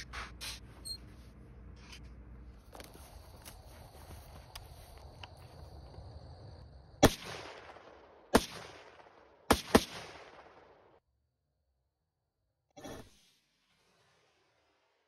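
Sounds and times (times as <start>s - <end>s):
rifle shots with echo: 7.0s - 10.9s.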